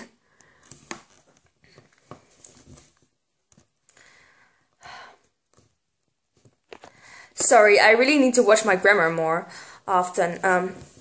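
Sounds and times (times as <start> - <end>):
short breath: 6.9 - 7.4, 9.5 - 9.9.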